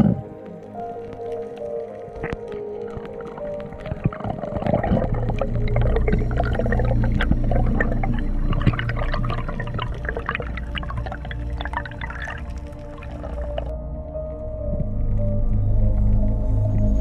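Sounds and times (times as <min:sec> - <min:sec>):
dense crackle of clicks: 0:00.0 - 0:17.0
underwater rumble of moving water: 0:00.0 - 0:17.0.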